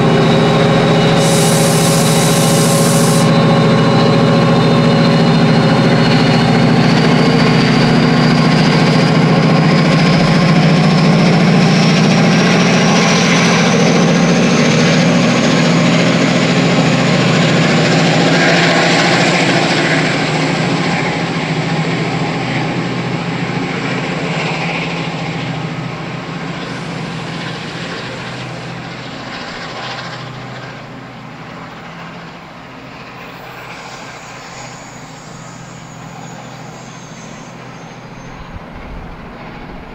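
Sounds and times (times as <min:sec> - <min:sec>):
high whine rising in pitch: 0:00.0 - 0:18.5, 0:26.2 - 0:30.1, 0:33.1 - 0:39.3
diesel locomotive engine drone: 0:00.0 - 0:39.9.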